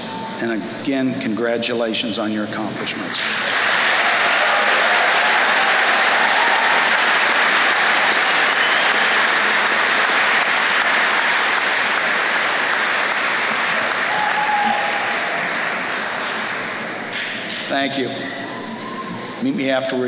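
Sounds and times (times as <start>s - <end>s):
audience applauding: 3.3s - 17.1s.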